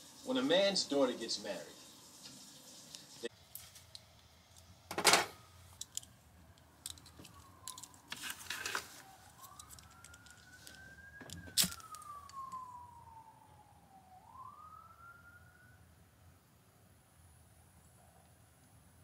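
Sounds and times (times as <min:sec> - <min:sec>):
emergency siren wailing: 0:05.0 - 0:16.3.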